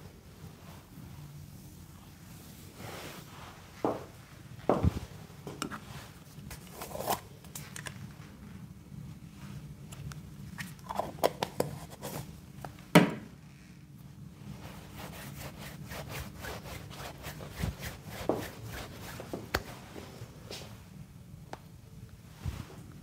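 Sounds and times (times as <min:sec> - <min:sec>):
scratchy rubbing and scraping: 0:14.6 - 0:19.5.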